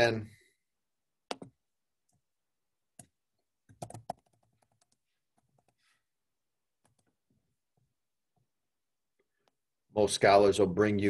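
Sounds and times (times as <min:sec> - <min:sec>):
keyboard typing: 0:03.0 - 0:05.8, 0:06.8 - 0:07.2.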